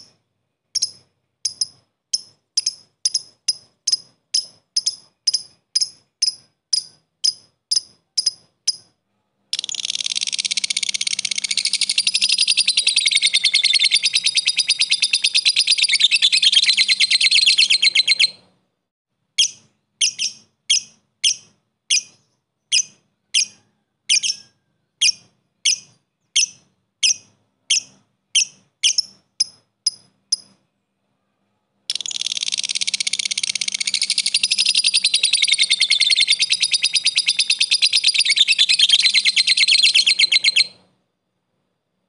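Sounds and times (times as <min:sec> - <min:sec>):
lovebird chattering rattle: 0:00.0 - 0:18.3, 0:25.0 - 0:30.6, 0:31.9 - 0:40.8
sharp ticking bird chips: 0:00.0 - 0:18.4, 0:19.4 - 0:30.6, 0:31.9 - 0:40.9.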